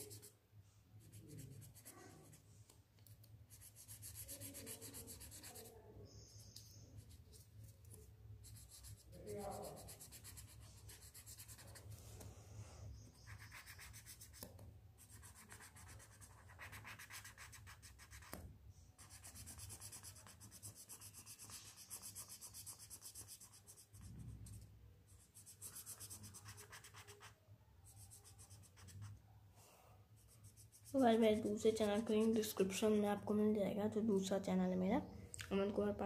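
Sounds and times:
felt-tip pens scratching paper: 0.0s - 0.3s, 1.0s - 2.5s, 3.2s - 12.3s, 13.1s - 18.4s, 19.0s - 24.6s, 25.2s - 29.2s, 30.2s - 32.8s.

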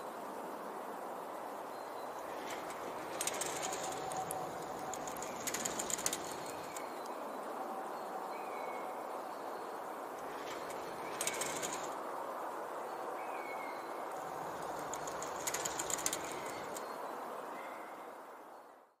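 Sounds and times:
steady wind hiss: 0.0s - 19.0s
curtain fabric fluttering: 2.2s - 6.9s, 10.2s - 12.0s, 14.1s - 16.9s.

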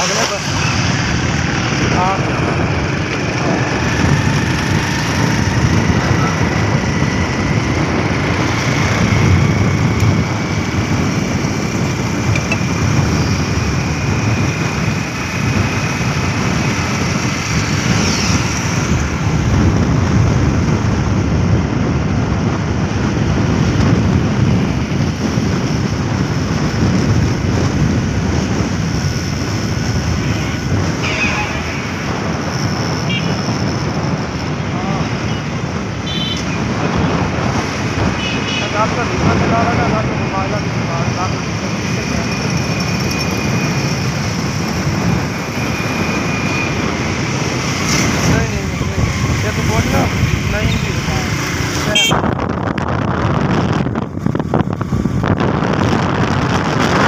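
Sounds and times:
vehicle engine and road noise: 0.0s - 57.0s
wind rumbling on microphone: 0.0s - 57.0s.

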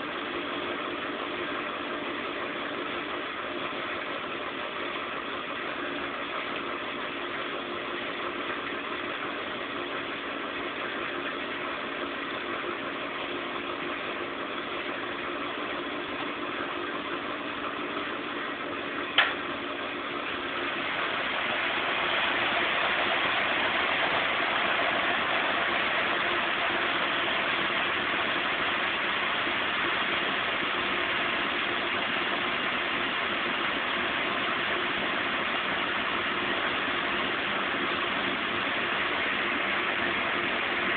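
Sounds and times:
washing machine running: 0.0s - 40.9s
sharp click: 19.2s - 19.4s.

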